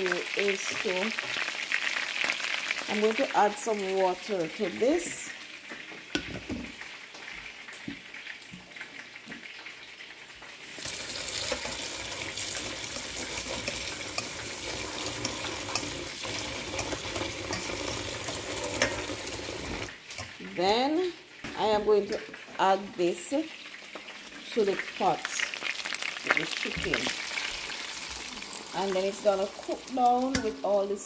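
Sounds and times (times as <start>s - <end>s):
tap water running into metal bowl: 10.8s - 20.3s.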